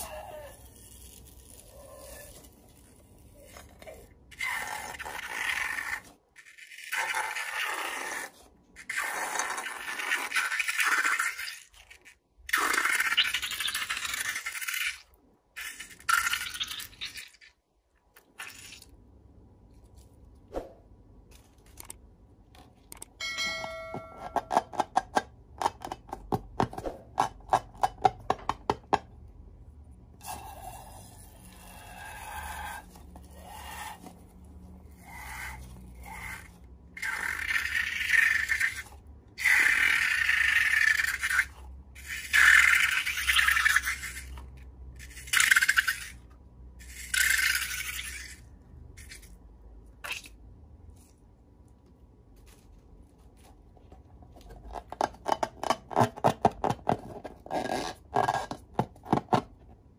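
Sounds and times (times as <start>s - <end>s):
slime squelching and sputtering: 0.0s - 22.9s, 30.0s - 51.7s.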